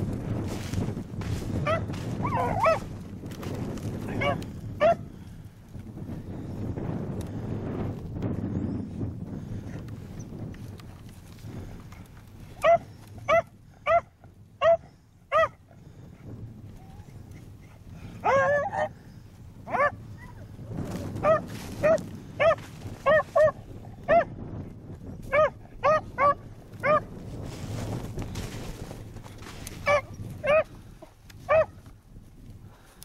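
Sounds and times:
wind rumble on microphone: 0:00.0 - 0:33.0
dogs barking and baying: 0:01.6 - 0:03.0, 0:04.0 - 0:05.1, 0:12.5 - 0:15.8, 0:16.8 - 0:19.0, 0:19.6 - 0:24.4, 0:25.2 - 0:27.1, 0:29.8 - 0:31.8.

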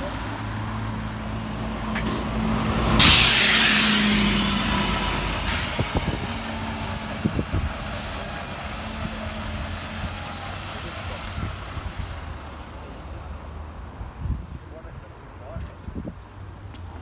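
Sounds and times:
bus engine running: 0:00.0 - 0:12.4.

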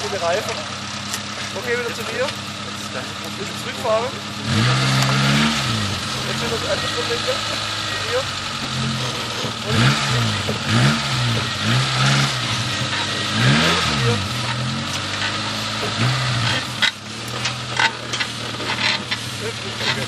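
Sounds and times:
engine revving in short bursts: 0:04.4 - 0:20.0.

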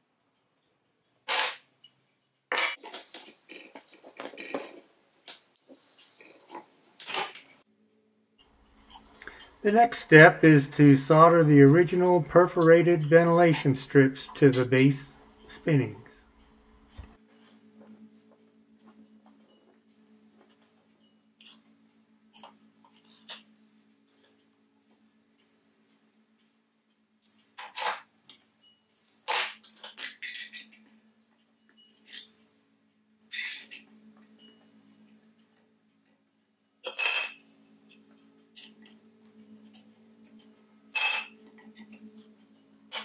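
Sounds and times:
low steady hum: 0:07.6 - 0:27.6
metal parts clinking and scraping: 0:29.0 - 0:31.0, 0:33.3 - 0:33.9, 0:36.8 - 0:39.0, 0:39.6 - 0:42.1.

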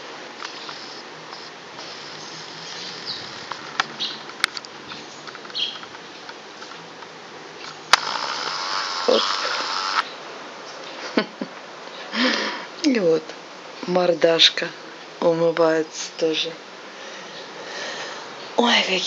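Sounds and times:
outdoor background hiss: 0:00.0 - 0:19.0
camera handling noise: 0:00.4 - 0:10.0
sharp clicks: 0:00.4 - 0:10.1
small birds chirping: 0:00.4 - 0:11.0.

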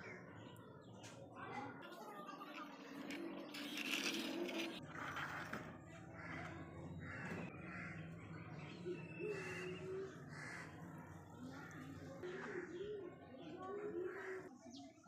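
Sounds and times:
crows cawing: 0:06.2 - 0:08.1, 0:09.3 - 0:10.9.

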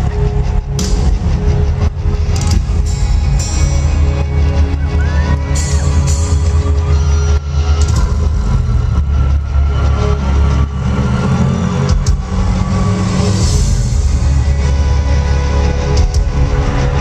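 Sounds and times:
loud music with booming bass: 0:00.0 - 0:17.0
person whooping: 0:04.8 - 0:06.1.

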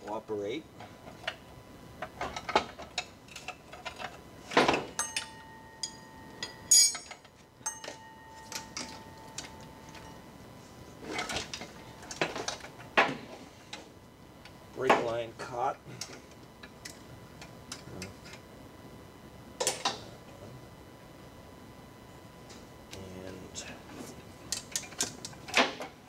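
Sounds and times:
thin ringing tone: 0:04.9 - 0:10.7.

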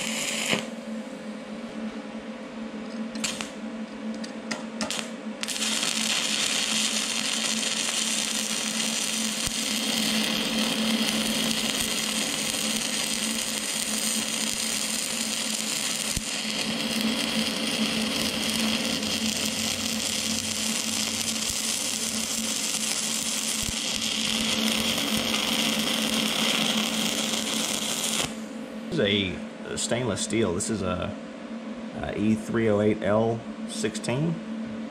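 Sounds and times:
welding arc hissing and humming: 0:00.0 - 0:00.8, 0:03.1 - 0:29.3.

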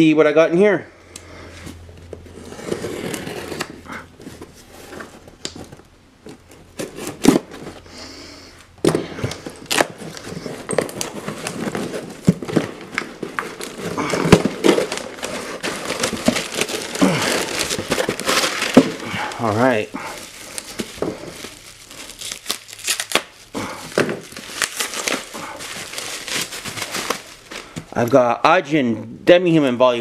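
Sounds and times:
paper and plastic rustling: 0:01.6 - 0:07.9, 0:08.8 - 0:28.4
tape peeling off: 0:09.2 - 0:28.1
blade slitting packing tape: 0:22.0 - 0:23.4.

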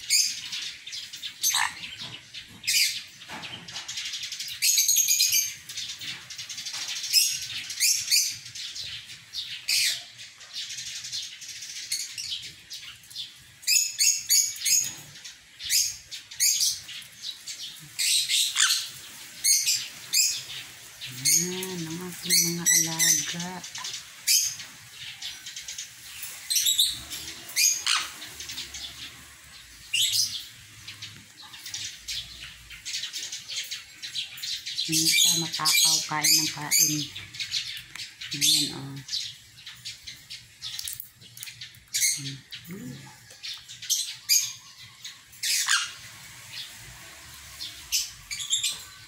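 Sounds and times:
parrot screeching: 0:01.4 - 0:01.8, 0:18.4 - 0:18.9, 0:27.6 - 0:28.2, 0:45.5 - 0:46.0
parrot squawking: 0:01.4 - 0:01.9, 0:18.0 - 0:19.0, 0:26.6 - 0:28.3, 0:34.9 - 0:37.2, 0:45.4 - 0:46.0
parrots calling loudly: 0:01.4 - 0:03.9, 0:13.0 - 0:49.0
soft parrot chirps: 0:01.5 - 0:02.0.

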